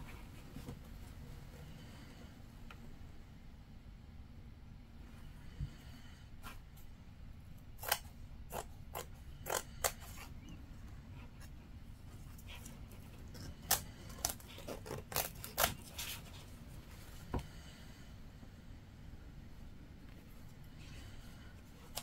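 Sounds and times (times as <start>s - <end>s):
scissors snipping fabric: 7.8s - 10.2s, 13.3s - 16.2s.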